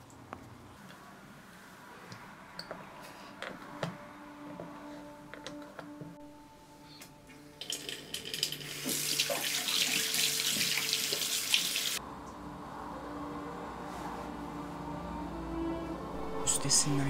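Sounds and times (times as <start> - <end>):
tap water running into basin: 7.6 - 12.0.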